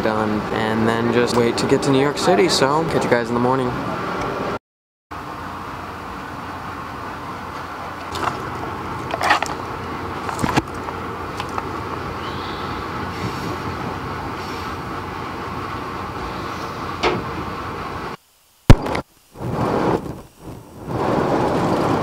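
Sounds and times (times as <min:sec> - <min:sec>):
train coach rolling on rails: 0:05.2 - 0:18.2.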